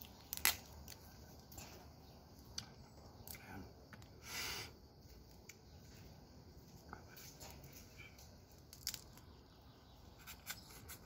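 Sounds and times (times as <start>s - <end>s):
crab shell cracking and clicking: 0.0s - 1.6s, 8.2s - 9.4s.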